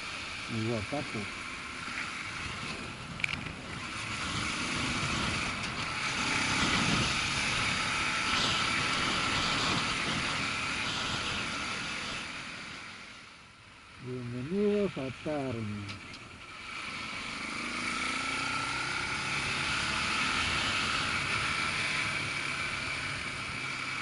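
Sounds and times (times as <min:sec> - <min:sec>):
wind rush: 0:02.5 - 0:12.4
motorcycle engine running: 0:14.0 - 0:24.0.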